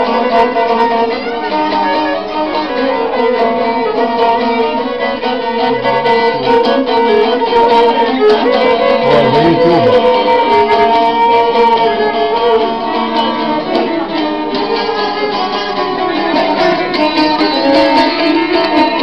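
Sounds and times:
plucked lute strokes: 0.0s - 19.0s
violin melody: 0.0s - 19.0s.

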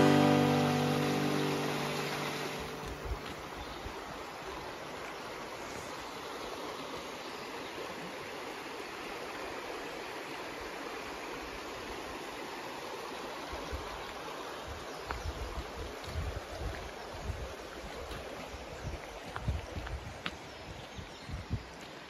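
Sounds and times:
river rushing over rocks: 0.0s - 14.8s.

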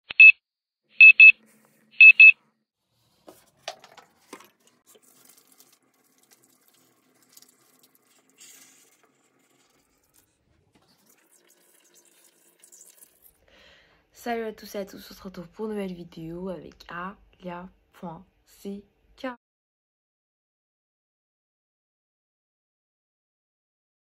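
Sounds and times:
alarm double beeps: 0.1s - 0.4s, 1.0s - 1.4s, 2.0s - 2.3s.

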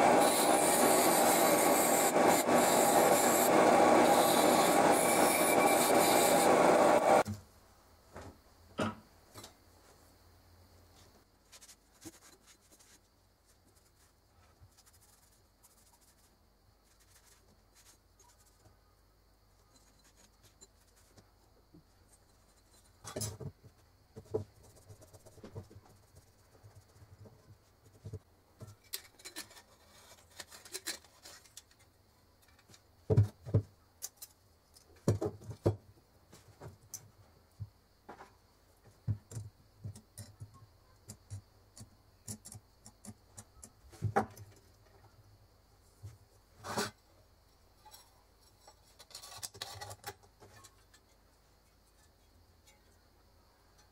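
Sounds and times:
buffing wheel rubbing metal: 0.0s - 7.2s.

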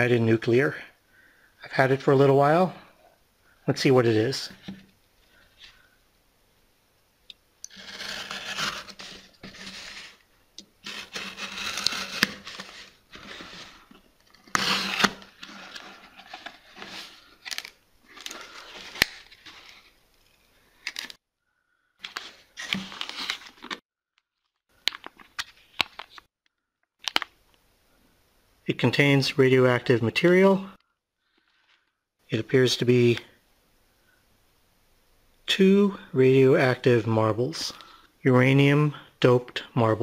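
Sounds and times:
cardboard flaps scraping and rustling: 7.7s - 10.2s, 10.8s - 19.9s
utility knife slitting tape: 10.8s - 12.7s.

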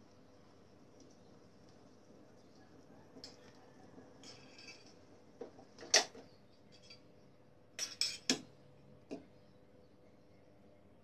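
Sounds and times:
wire skimmer clinking on metal pot: 4.2s - 5.0s.

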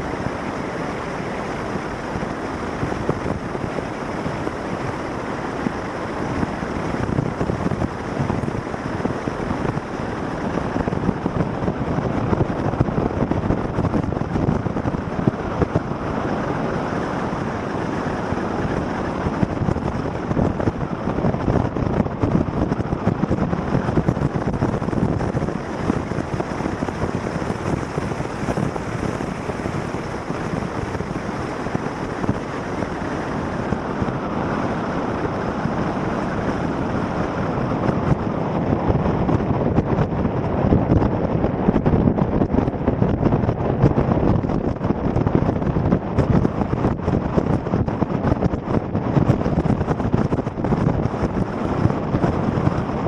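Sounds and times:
vehicle road noise: 0.0s - 53.0s
wind on microphone: 0.0s - 53.0s.

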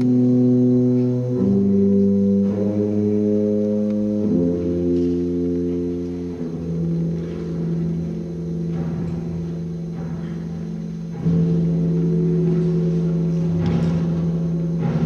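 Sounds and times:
rumbling percussion roll: 0.0s - 15.0s
wind band sustained chord: 0.0s - 15.0s.

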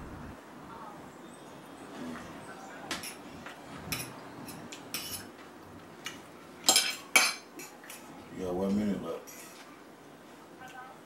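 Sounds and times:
fork clinking on a plate: 3.9s - 5.3s, 6.6s - 7.7s.

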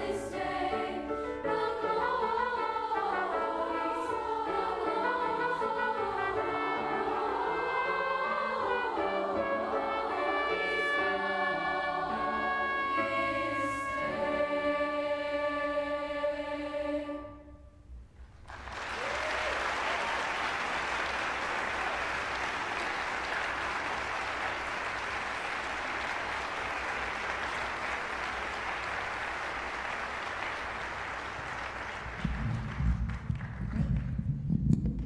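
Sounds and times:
choir final chord: 0.0s - 17.7s
audience applause: 18.4s - 34.2s
loud low thumps: 32.1s - 35.0s.

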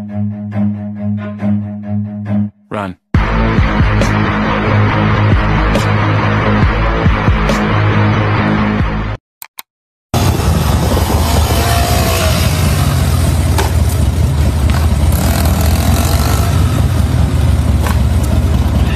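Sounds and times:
motorcycle engine running: 10.2s - 18.9s.

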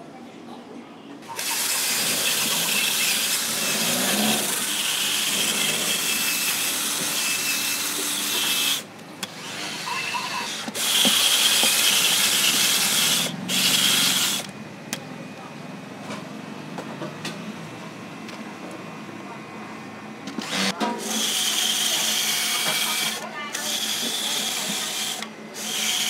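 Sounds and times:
drill grinding coconut: 1.2s - 14.5s, 20.4s - 26.0s.

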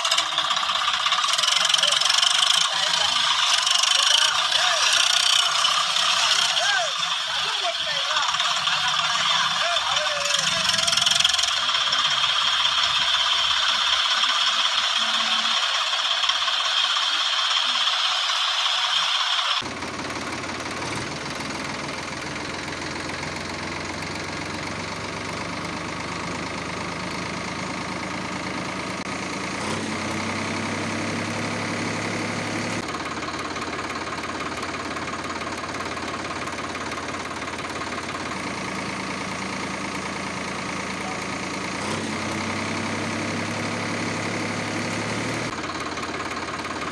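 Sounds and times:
high hissing whine: 0.0s - 19.6s
tractor engine running: 0.0s - 46.9s.

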